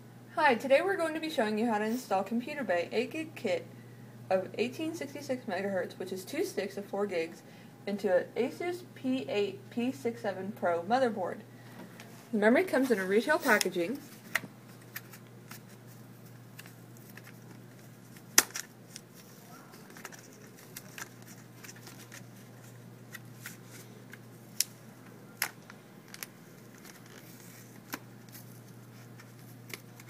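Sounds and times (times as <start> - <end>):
steady low hum: 0.0 - 30.0
plastic packaging clicks and crackles: 14.3 - 24.8, 25.4 - 30.0.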